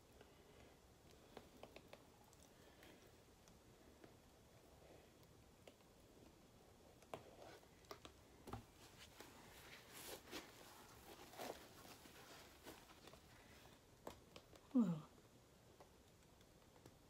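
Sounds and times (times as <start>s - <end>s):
gloved hands rustling: 7.0s - 14.6s.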